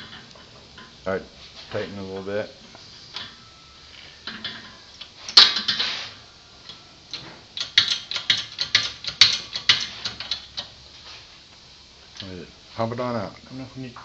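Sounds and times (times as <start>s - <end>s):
ratchet wrench clicking: 6.6s - 10.7s.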